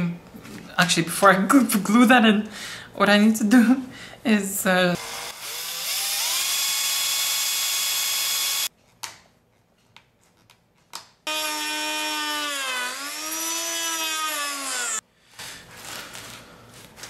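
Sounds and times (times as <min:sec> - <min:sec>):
cordless drill boring into wood: 0:05.0 - 0:08.7, 0:11.3 - 0:15.0
power tool motor running: 0:05.0 - 0:08.7, 0:11.3 - 0:15.0.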